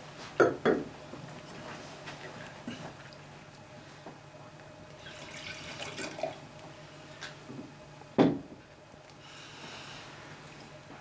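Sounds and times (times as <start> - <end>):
wine pouring into glass: 5.0 - 6.4.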